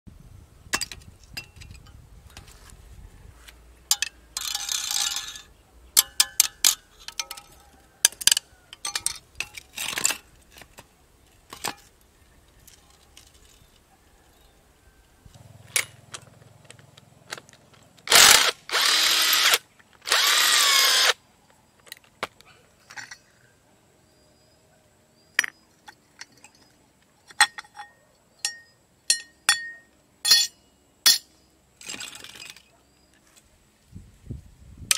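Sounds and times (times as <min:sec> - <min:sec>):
metal clinks and knocks: 0:03.9 - 0:13.8, 0:21.8 - 0:23.4, 0:25.3 - 0:32.8
cordless drill whirring: 0:18.1 - 0:21.2.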